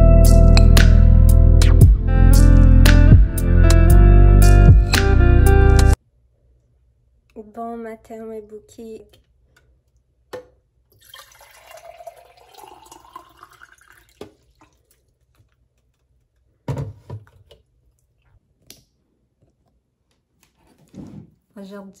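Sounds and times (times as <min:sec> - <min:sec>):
water pouring into glass: 0:11.0 - 0:15.0.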